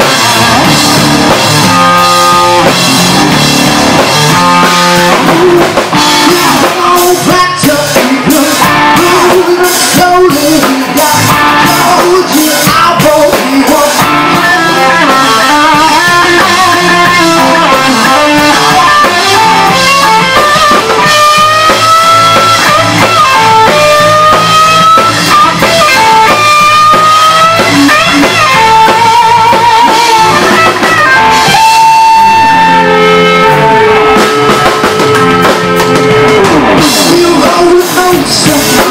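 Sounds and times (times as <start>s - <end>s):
live rock band playing: 0.0s - 38.9s
man singing: 4.7s - 32.2s, 36.4s - 38.9s.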